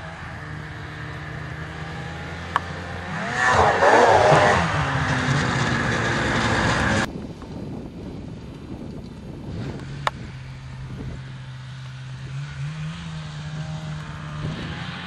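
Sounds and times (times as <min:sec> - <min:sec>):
snowmobile engine revving: 0:00.0 - 0:07.1, 0:09.5 - 0:15.0.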